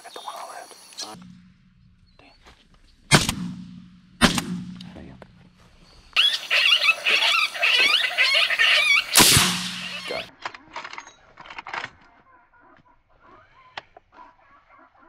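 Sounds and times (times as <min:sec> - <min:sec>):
rifle shot: 0:03.0 - 0:05.2, 0:09.2 - 0:10.3
coyotes yipping and howling: 0:06.0 - 0:10.3.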